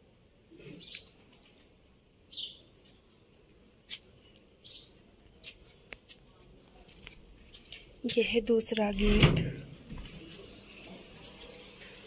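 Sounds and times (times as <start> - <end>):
bird chirping: 2.3 - 2.7.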